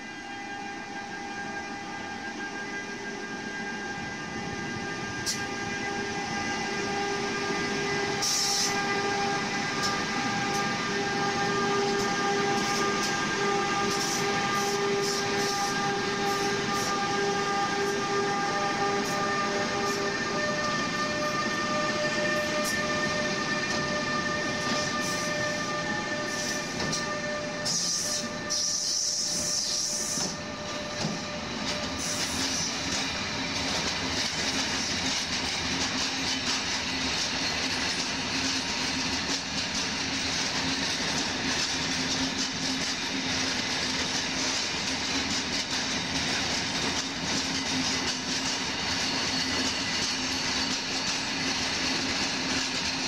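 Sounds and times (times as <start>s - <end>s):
electric locomotive whine: 0.0s - 53.0s
train wheels rumbling on rails: 0.0s - 53.0s.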